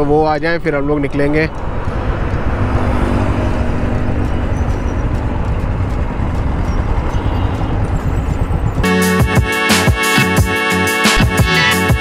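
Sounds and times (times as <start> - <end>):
motorcycle engines rumbling: 0.0 - 9.4.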